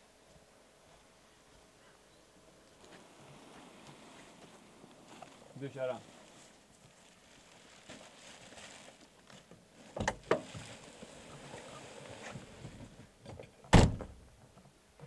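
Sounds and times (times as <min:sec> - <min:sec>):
car door heavy thud: 0:13.7 - 0:14.2.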